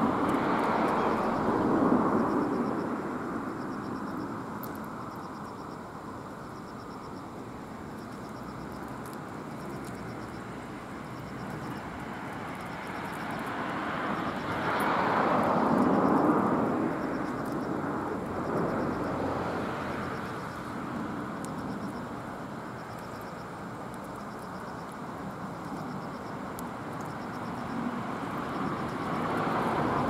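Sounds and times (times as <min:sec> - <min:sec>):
road traffic rushing past: 0:00.0 - 0:04.6, 0:09.6 - 0:22.8, 0:26.1 - 0:30.0.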